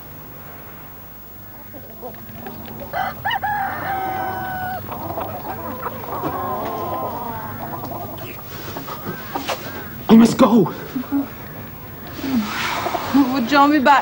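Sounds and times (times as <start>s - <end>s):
chickens clucking: 1.2s - 14.0s
rooster crowing: 1.4s - 10.1s.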